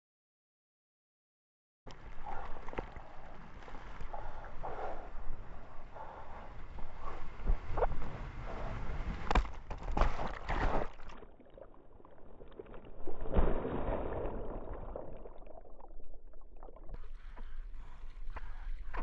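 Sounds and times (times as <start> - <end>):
churning water: 1.9 - 19.0
wave splashing hits: 13.0 - 15.2.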